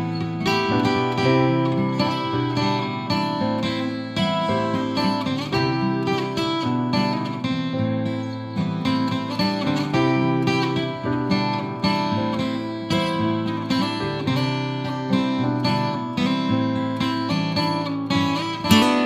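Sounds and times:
acoustic guitar playing: 0:00.0 - 0:19.0.

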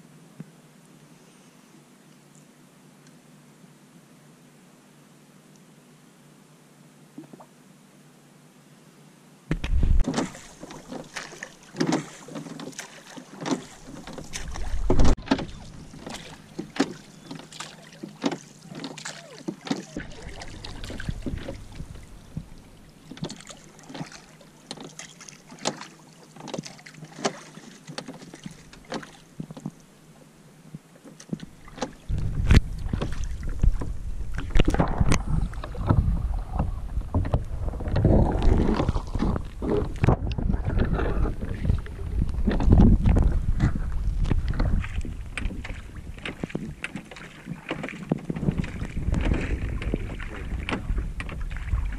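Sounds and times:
wind rumble on microphone: 0:09.5 - 0:11.2, 0:14.2 - 0:16.8, 0:19.9 - 0:23.3, 0:31.4 - 0:47.2, 0:47.9 - 0:51.9
oars knocking and splashing: 0:09.5 - 0:29.9, 0:30.7 - 0:51.9.

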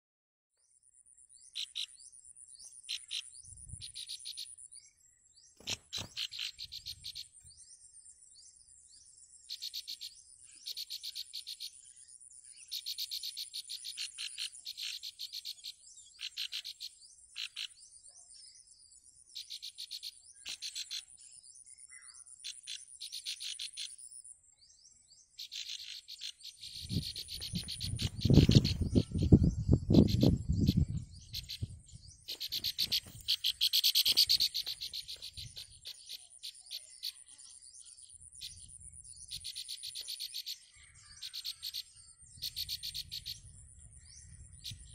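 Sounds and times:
nestlings begging calls: 0:05.6 - 0:07.4, 0:12.6 - 0:17.8, 0:25.4 - 0:37.4, 0:39.2 - 0:43.4
high-pitched insect buzz: 0:25.4 - 0:29.1, 0:32.3 - 0:37.2.

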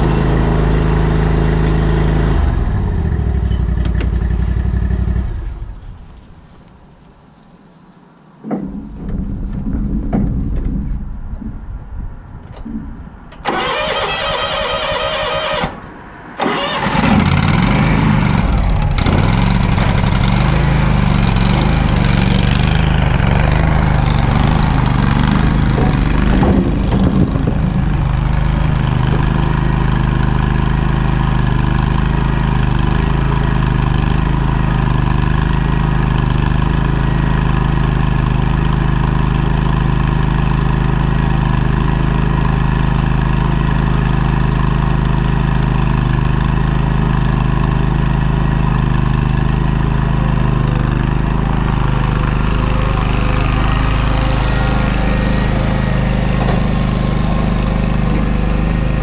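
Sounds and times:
engine running: 0:00.0 - 0:06.8, 0:08.4 - 0:59.0
electric starter whine: 0:13.3 - 0:59.0.

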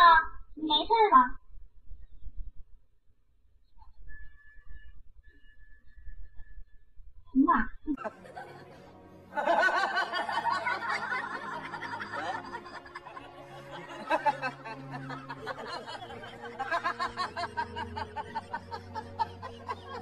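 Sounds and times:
background music: 0:07.3 - 0:20.0
people laughing and snickering: 0:08.0 - 0:20.0.

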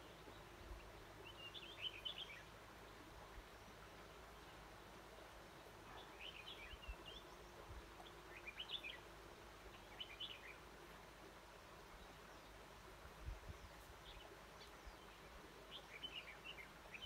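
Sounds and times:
bird chirping: 0:00.0 - 0:02.5, 0:05.8 - 0:09.0, 0:09.7 - 0:10.6, 0:13.5 - 0:17.0.

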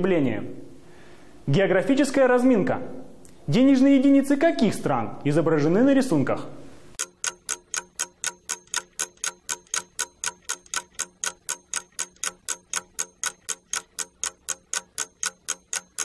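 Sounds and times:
clock ticking: 0:07.0 - 0:16.0.

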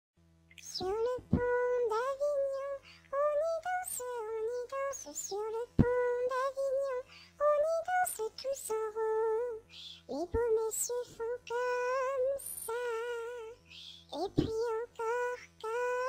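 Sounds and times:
child singing: 0:00.6 - 0:16.0.

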